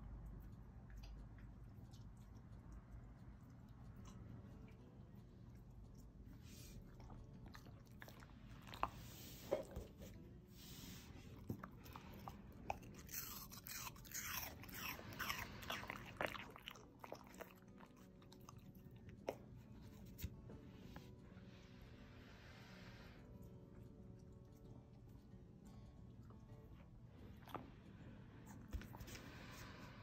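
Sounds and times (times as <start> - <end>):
dog chewing fruit: 0.4 - 10.4, 11.2 - 20.3.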